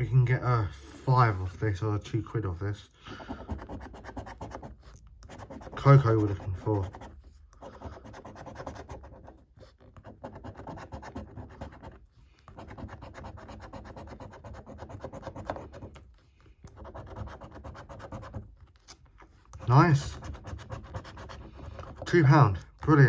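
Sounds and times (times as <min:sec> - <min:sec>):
coin scratching scratchcard: 0:03.3 - 0:16.0, 0:16.7 - 0:18.5, 0:19.6 - 0:22.4.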